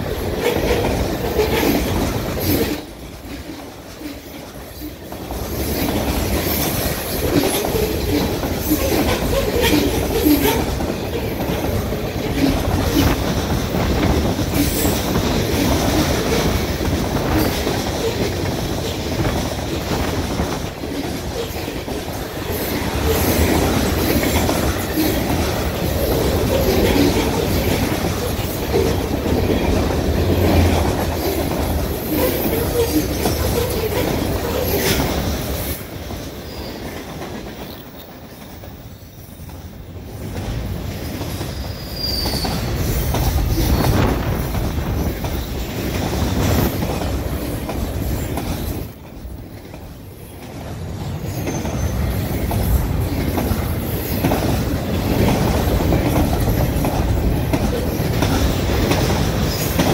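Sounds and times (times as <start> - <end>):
train wheels on rails: 0.0 - 59.9
high wheel squeal: 41.5 - 42.7.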